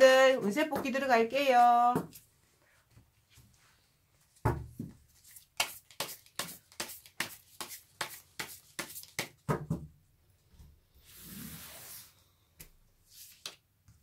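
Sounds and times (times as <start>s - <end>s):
cards shuffling: 5.2s - 9.4s.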